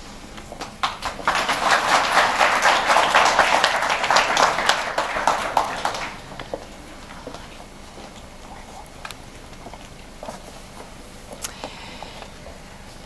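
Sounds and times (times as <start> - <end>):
audience applauding: 0.6 - 6.7.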